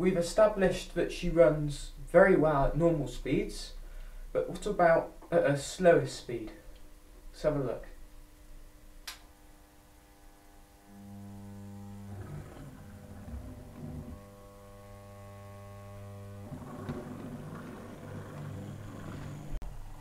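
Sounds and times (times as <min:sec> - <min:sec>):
model locomotive motor humming: 0:10.1 - 0:20.0.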